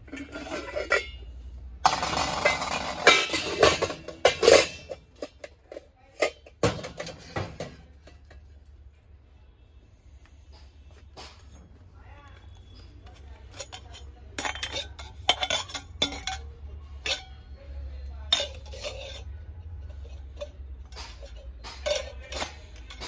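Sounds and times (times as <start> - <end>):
metal pots clinking: 0.0 - 8.8, 12.6 - 23.0
metal pots scraping and rattling: 0.0 - 9.1, 10.5 - 23.0.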